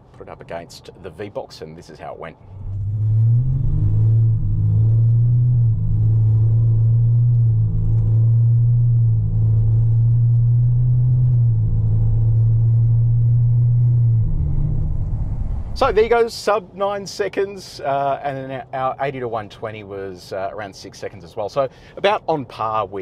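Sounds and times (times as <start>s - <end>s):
diesel engine accelerating: 2.4s - 16.3s.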